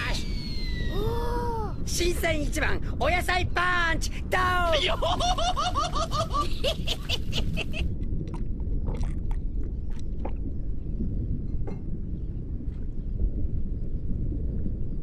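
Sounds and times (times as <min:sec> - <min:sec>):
low rumble: 0:00.0 - 0:15.0
rhythmic laughter: 0:05.0 - 0:07.9.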